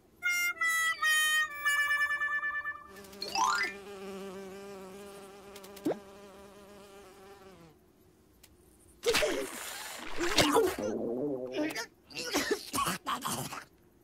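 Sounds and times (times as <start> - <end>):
cartoon music: 0.2 - 3.8.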